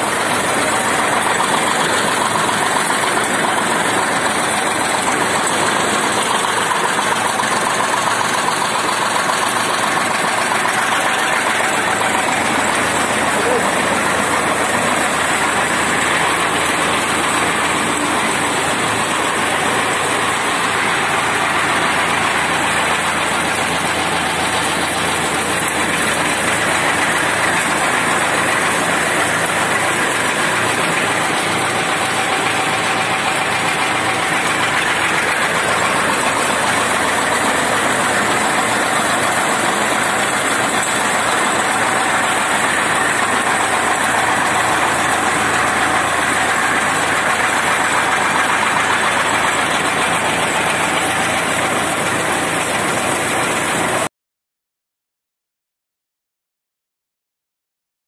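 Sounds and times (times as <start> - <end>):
tractor engine running: 0.0 - 54.1.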